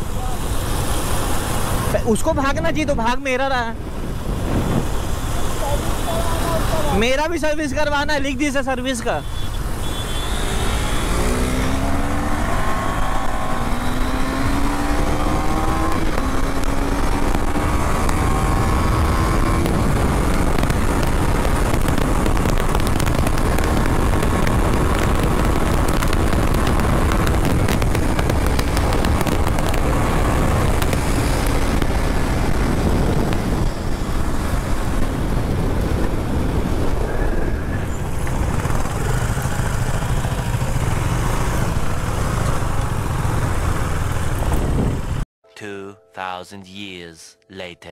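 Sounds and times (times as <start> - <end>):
wind rush on microphone: 0.0 - 7.0, 10.4 - 45.2
motorcycle engine accelerating: 10.1 - 37.1, 37.8 - 45.2.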